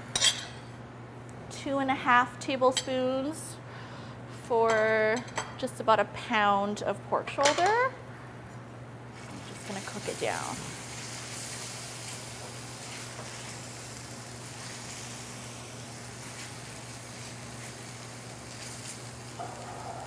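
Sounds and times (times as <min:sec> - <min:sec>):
steady low hum: 0:07.9 - 0:20.0
paste sizzling in hot oil: 0:09.5 - 0:19.4.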